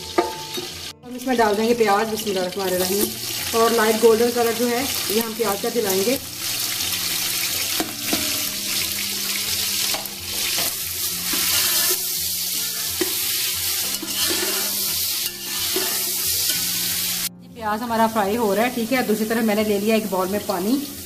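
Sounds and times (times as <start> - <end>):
onions sizzling in oil: 0.0 - 17.3, 18.0 - 21.0
spatula scraping a pot: 7.6 - 17.1.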